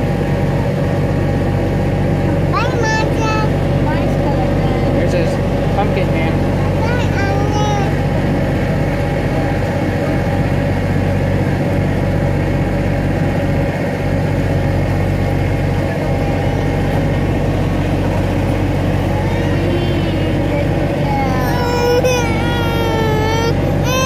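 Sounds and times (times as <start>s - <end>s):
small train engine humming: 0.0s - 24.0s.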